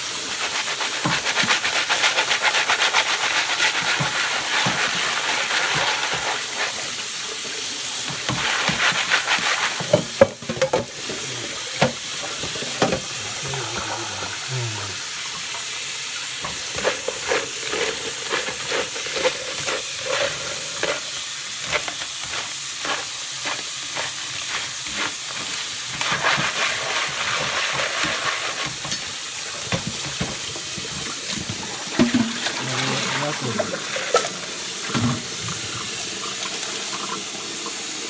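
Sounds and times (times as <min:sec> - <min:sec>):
tap running into sink: 0:07.4 - 0:13.2, 0:15.0 - 0:37.8
crayfish rattling in colander: 0:16.5 - 0:30.5.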